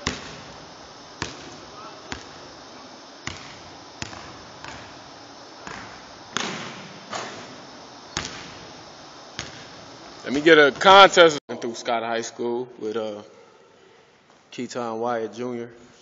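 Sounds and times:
basketball bouncing on hardwood floor: 1.2 - 2.4, 3.2 - 5.0, 5.6 - 6.8, 8.2 - 8.6.

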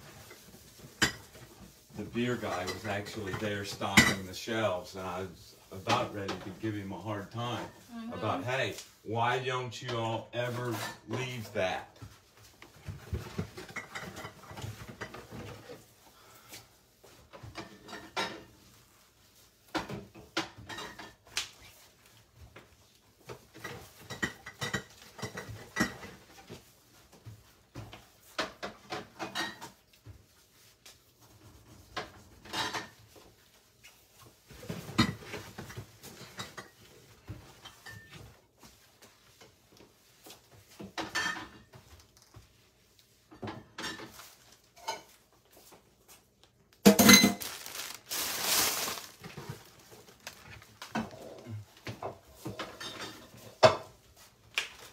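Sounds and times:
dishes and pots clattering: 0.0 - 4.3, 12.0 - 15.9, 17.1 - 19.0, 19.7 - 21.3, 23.2 - 29.8, 31.9 - 33.3, 34.4 - 38.8, 40.3 - 42.0, 43.3 - 45.8, 46.8 - 47.5, 50.9 - 54.0.

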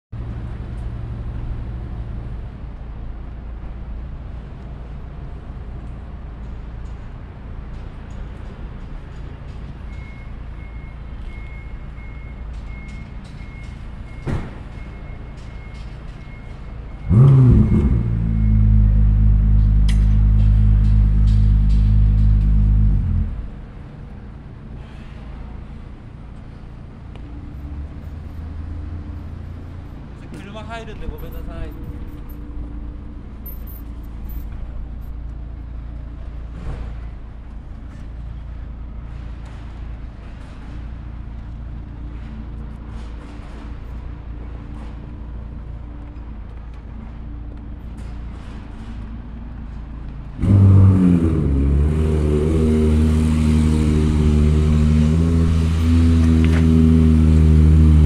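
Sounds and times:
street traffic rumble: 0.1 - 58.0
sports car engine starting and idling: 15.6 - 24.1, 50.4 - 58.0.

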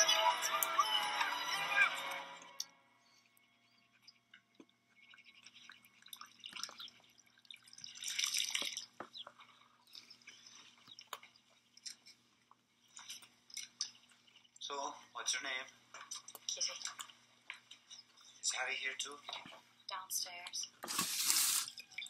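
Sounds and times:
wet chewing and mouth clicks: 3.2 - 14.7, 15.8 - 18.4.

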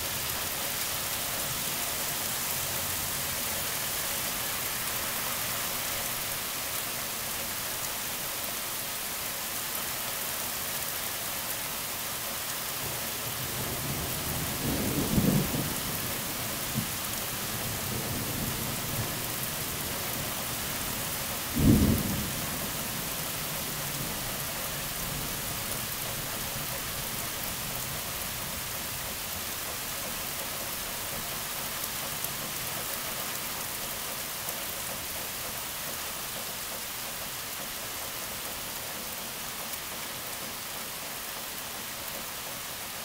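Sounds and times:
heavy rain hissing: 0.0 - 43.0
low rumble of thunder: 13.6 - 20.4, 21.3 - 26.0.

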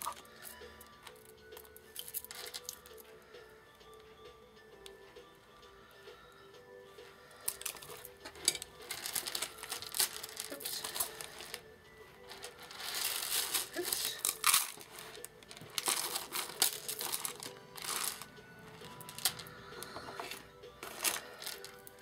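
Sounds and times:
faint background music: 0.0 - 22.0
fabric rustling and crinkling: 7.5 - 22.0.

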